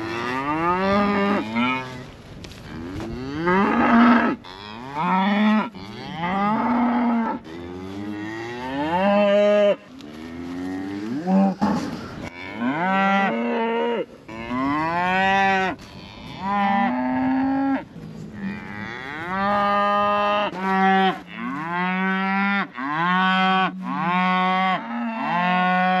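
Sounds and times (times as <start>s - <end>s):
cattle mooing: 2.8s - 17.8s.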